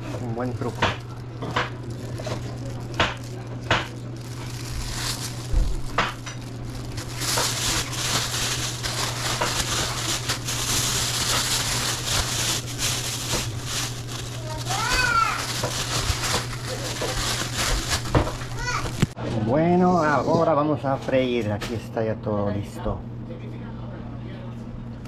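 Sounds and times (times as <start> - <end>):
plastic bags crinkling: 0.0 - 19.2.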